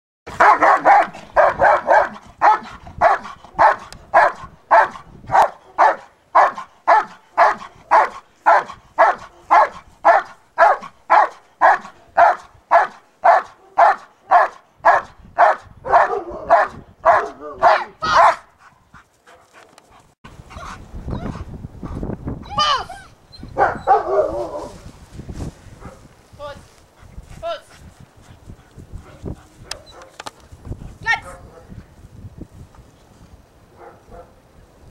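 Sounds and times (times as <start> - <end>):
dog barking: 0.3 - 18.5, 23.6 - 24.7, 25.8 - 26.1, 29.0 - 30.2, 33.8 - 34.4.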